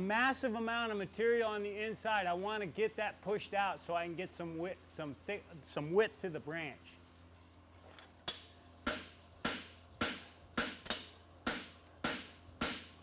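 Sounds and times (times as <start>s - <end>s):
hammer striking metal on anvil: 8.3s - 13.0s.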